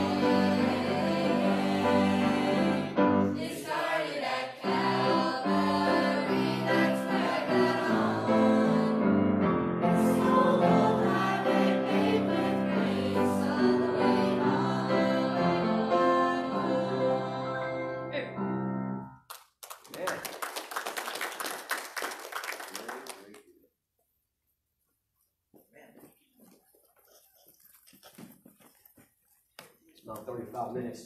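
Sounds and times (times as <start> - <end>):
choir singing gospel song: 0.0 - 18.1.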